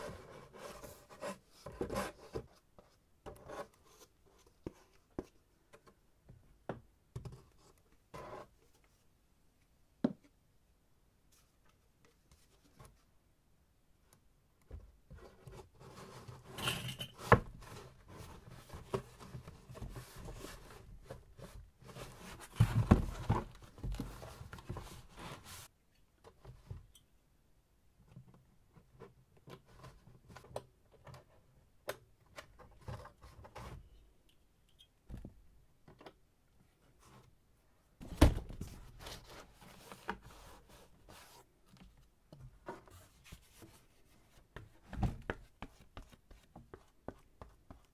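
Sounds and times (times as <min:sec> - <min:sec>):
cardboard rustling and scraping: 0:15.1 - 0:25.7, 0:38.0 - 0:47.5.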